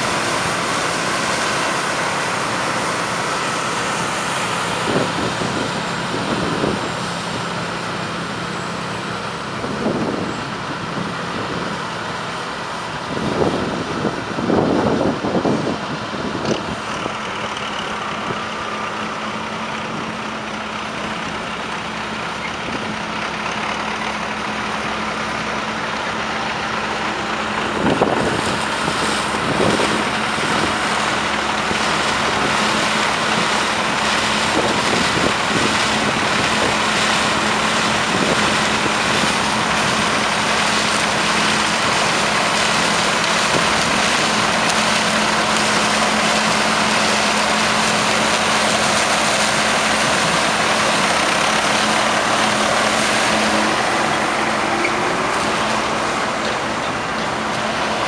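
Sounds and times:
combine harvester running: 0.0s - 58.0s.

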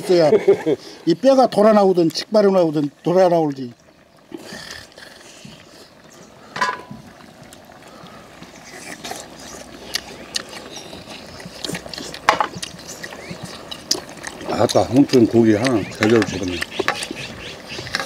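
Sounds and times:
person chewing: 8.6s - 18.0s.

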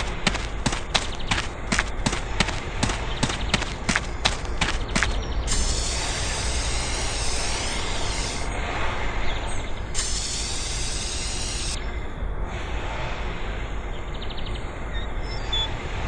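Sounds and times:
steady hiss of sand: 0.0s - 8.8s, 9.9s - 11.8s.

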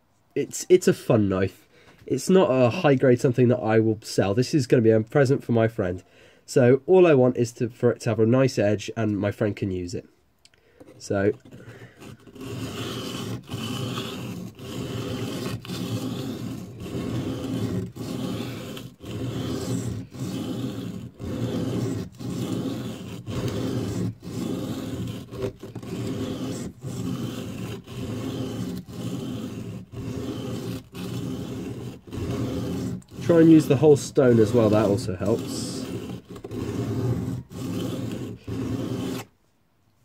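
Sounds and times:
knife scraping on sharpening stone: 10.9s - 39.3s.

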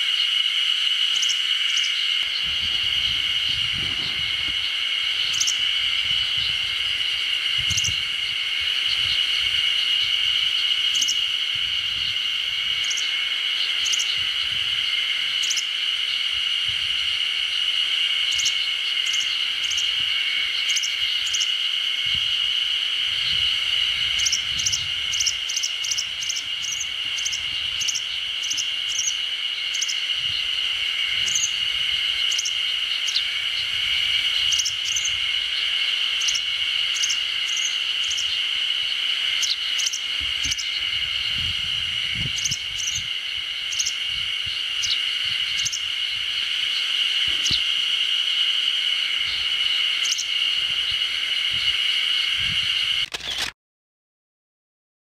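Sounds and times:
insect chorus buzzing: 0.0s - 53.4s
high bird chirps: 1.2s - 6.6s, 12.8s - 14.3s, 39.4s - 41.4s, 46.7s - 47.7s.

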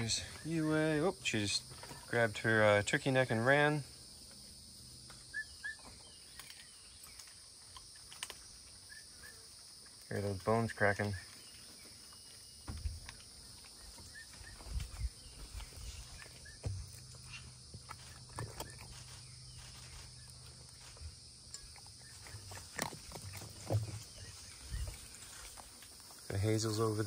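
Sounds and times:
fox crunching bones: 5.0s - 10.1s, 15.5s - 26.2s.

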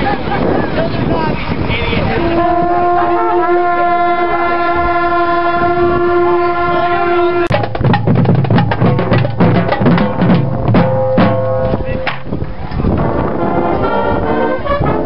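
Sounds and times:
steady horn-like tone: 2.1s - 7.5s, 13.1s - 15.0s
marching drumline: 7.5s - 12.3s.

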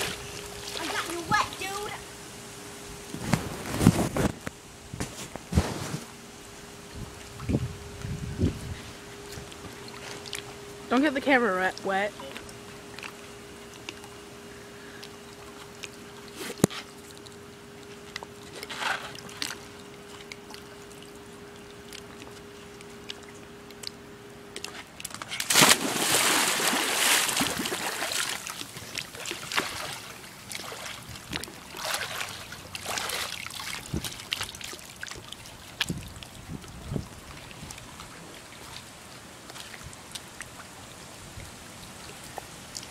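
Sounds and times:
water sloshing: 0.0s - 1.9s, 8.6s - 40.9s
faint steady hum: 0.0s - 42.9s
person splashing into pool: 25.4s - 31.0s, 31.7s - 34.8s.

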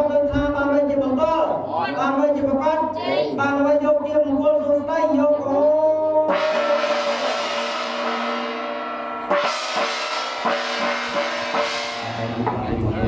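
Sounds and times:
percussive music: 6.1s - 13.0s
gong ringing: 6.3s - 12.7s.

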